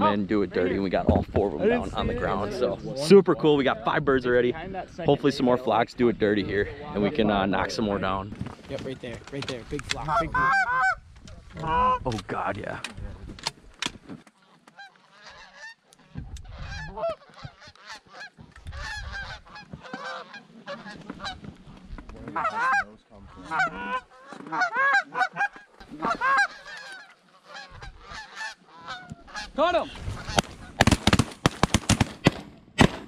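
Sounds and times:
geese honking and clucking: 9.9 - 12.3, 14.2 - 31.0.

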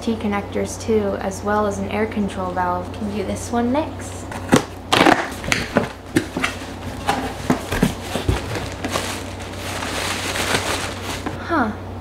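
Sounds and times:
cardboard flaps scraping and rustling: 4.3 - 11.4
cardboard box knocks and thumps: 4.5 - 11.4.

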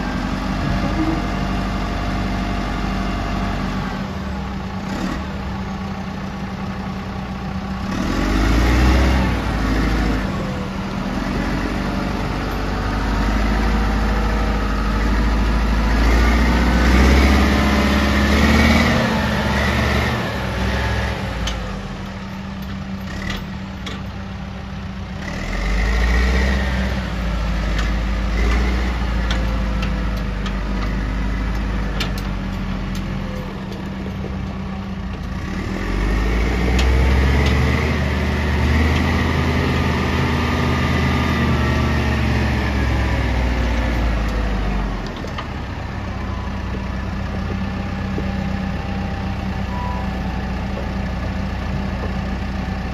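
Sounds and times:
diesel engine running: 0.0 - 52.9.

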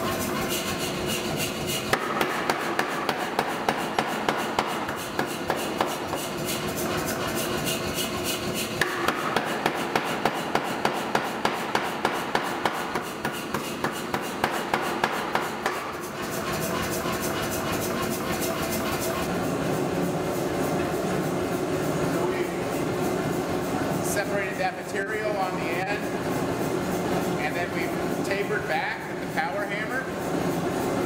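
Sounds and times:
power hammer striking steel: 1.9 - 6.1, 8.8 - 16.0.

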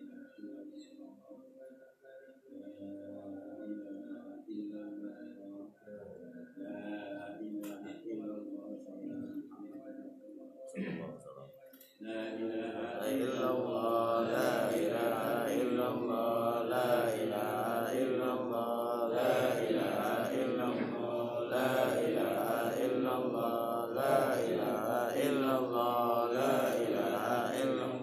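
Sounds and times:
men chanting: 6.0 - 9.5, 12.0 - 28.0.

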